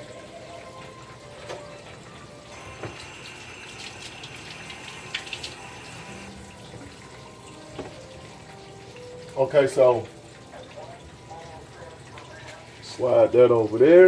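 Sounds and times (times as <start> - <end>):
fish frying in hot oil: 0.0 - 14.0
kitchen tap running: 0.0 - 14.0.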